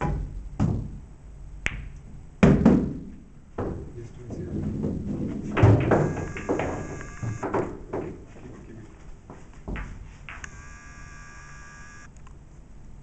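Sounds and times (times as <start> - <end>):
pool balls knocking: 3.6 - 8.3
pool balls clicking: 4.6 - 8.4, 9.6 - 10.5.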